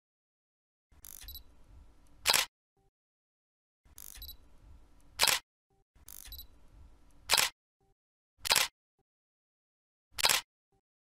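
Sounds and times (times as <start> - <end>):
camera shutter clicking: 2.2 - 2.5, 5.2 - 5.4, 7.3 - 7.5, 8.4 - 8.7, 10.2 - 10.5.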